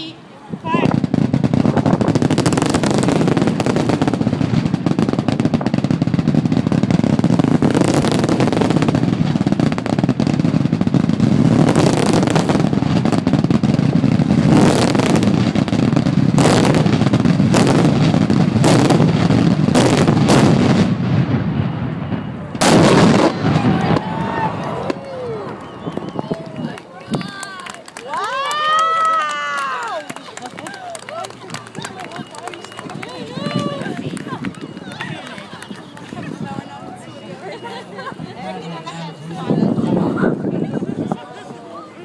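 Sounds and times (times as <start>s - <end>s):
loud fireworks booms: 0.6s - 27.7s, 28.4s - 41.2s
fireworks exploding in barrage: 0.8s - 27.4s.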